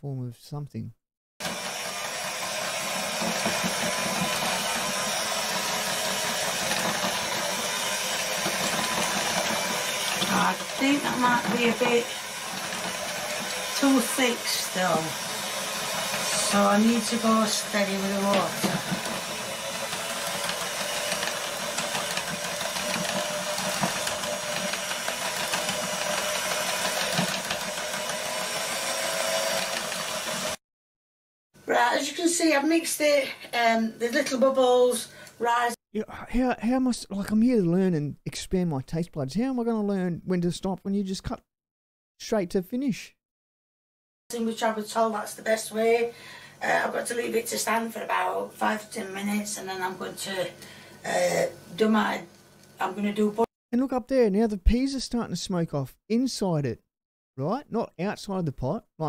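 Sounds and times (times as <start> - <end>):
electric hand mixer whisking batter: 1.4 - 30.6, 44.9 - 52.2.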